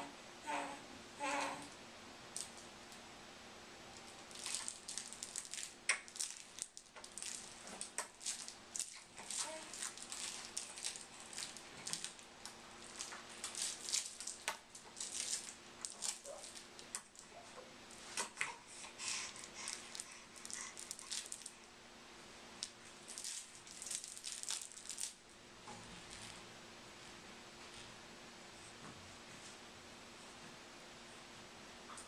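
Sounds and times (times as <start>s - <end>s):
hanging toys rustling and clicking: 4.0s - 21.6s, 22.6s - 26.5s.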